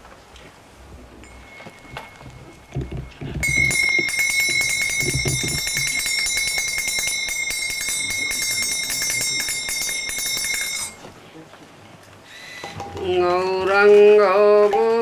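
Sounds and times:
hand cymbals clashing: 1.2s - 11.0s.

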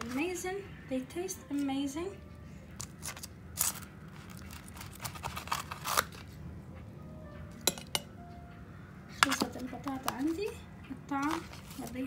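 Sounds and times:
metal tongs scraping foil tray: 2.8s - 6.2s, 11.2s - 12.0s.

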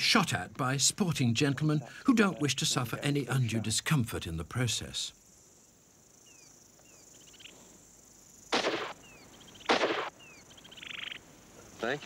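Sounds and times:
rifle shot: 8.5s - 9.0s, 9.7s - 10.1s.

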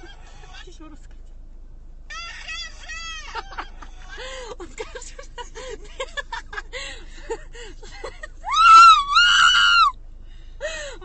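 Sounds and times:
women giggling and chattering: 3.2s - 8.4s.

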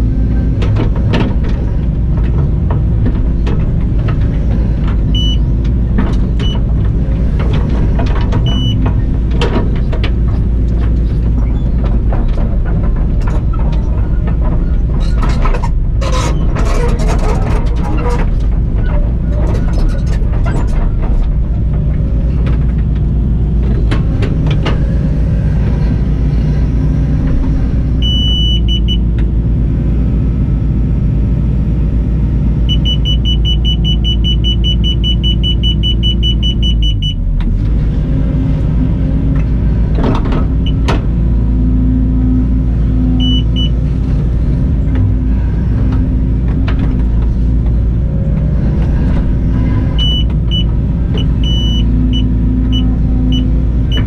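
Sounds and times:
excavator diesel engine and hydraulics: 0.0s - 54.0s
high beeps: 28.0s - 29.0s, 32.7s - 37.2s.

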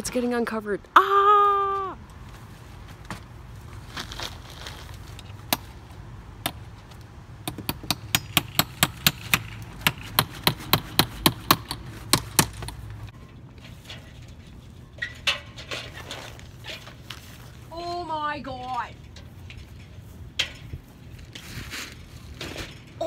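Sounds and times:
sharp knocks: 7.4s - 13.0s.

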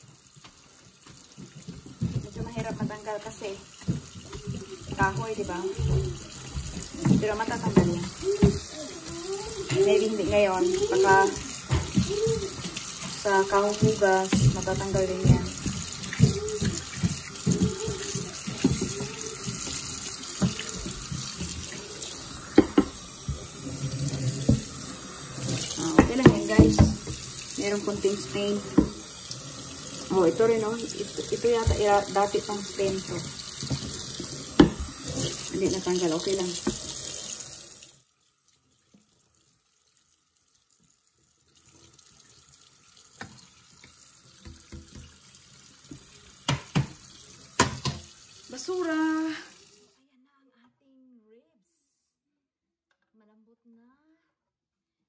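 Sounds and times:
tap running into sink: 0.3s - 37.6s, 43.1s - 48.2s
knocks against sink: 22.5s - 23.4s, 25.6s - 27.2s, 31.5s - 35.0s, 46.5s - 47.0s, 47.6s - 48.0s.

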